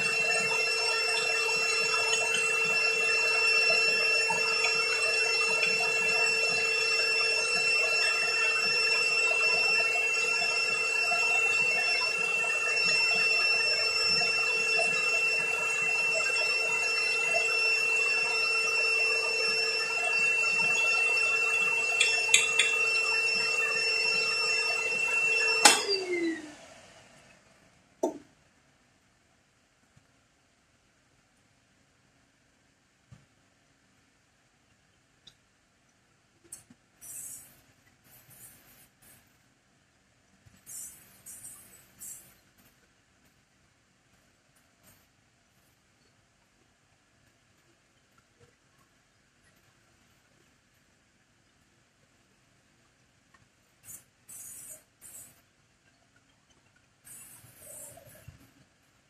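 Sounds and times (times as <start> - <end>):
shop vacuum whine: 0.0 - 27.5.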